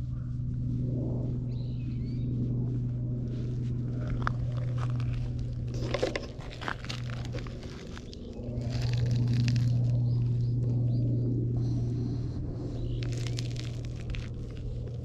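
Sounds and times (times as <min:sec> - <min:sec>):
clicks and crunches on gravel: 0:03.4 - 0:10.7, 0:12.7 - 0:15.0.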